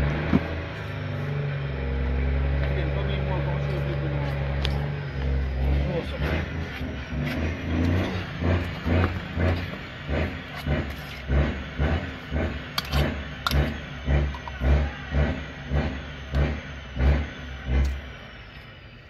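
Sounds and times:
fork mixing in a metal bowl: 12.8 - 13.6.

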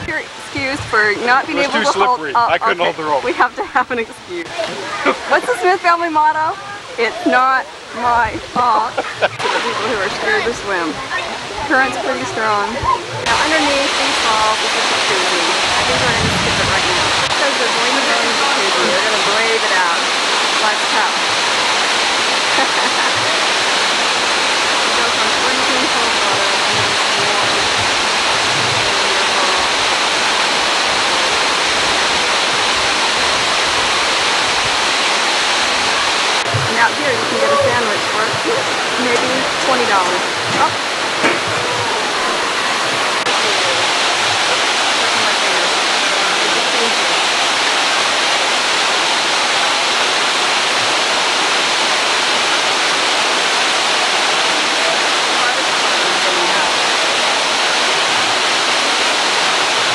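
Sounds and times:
waterfall pouring into pool: 13.2 - 59.9.

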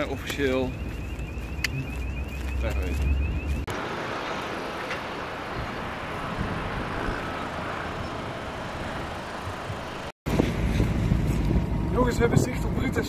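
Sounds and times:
distant road traffic: 0.0 - 13.0
wind rumble on microphone: 5.5 - 13.0.

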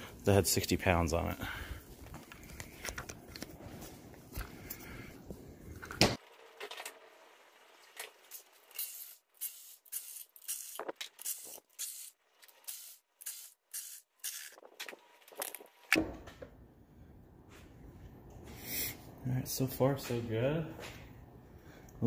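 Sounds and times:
cordless ratchet spinning bolts: 8.7 - 14.6.

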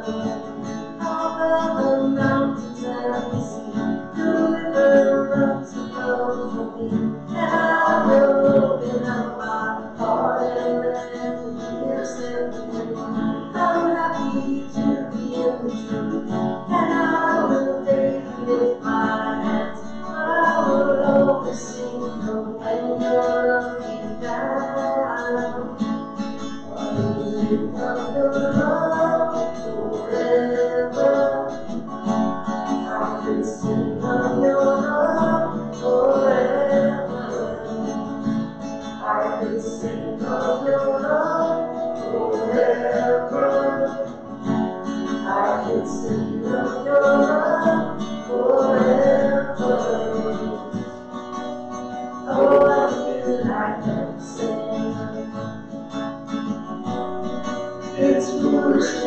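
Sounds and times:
acoustic guitar music: 0.0 - 59.0.

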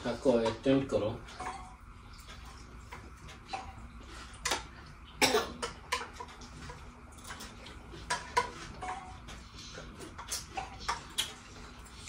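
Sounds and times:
person coughing: 5.2 - 5.7.

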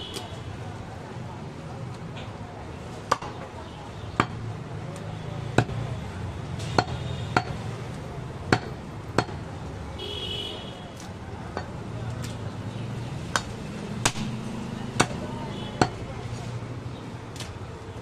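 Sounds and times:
knife chopping meat on wood: 6.7 - 7.7, 13.3 - 16.0.

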